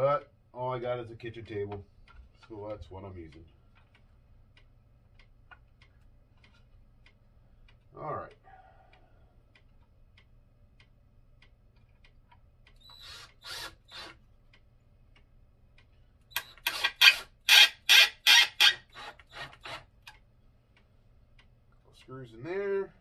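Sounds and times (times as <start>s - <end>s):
cordless drill bursts grinding: 12.9s - 14.2s, 16.4s - 19.8s.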